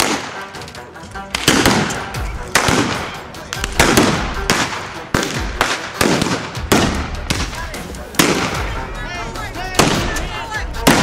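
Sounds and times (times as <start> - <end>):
gunshots with echo: 0.0 - 0.6, 1.3 - 8.9, 9.8 - 10.2, 10.8 - 11.0.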